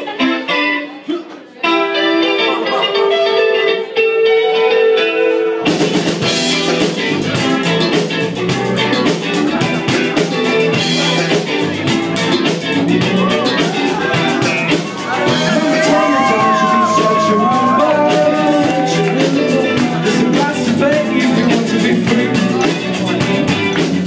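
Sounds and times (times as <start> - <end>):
live rock band playing: 0.0 - 24.0
electric guitar sustained notes: 14.7 - 21.5.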